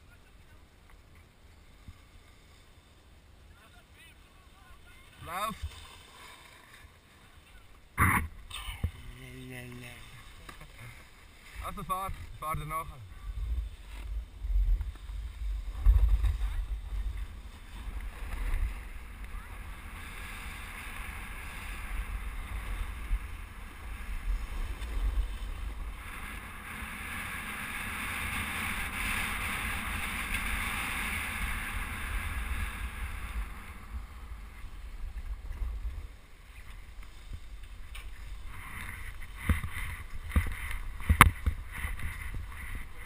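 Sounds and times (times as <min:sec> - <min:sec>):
skis sliding over packed snow: 0:00.1 - 0:08.0, 0:08.8 - 0:43.0.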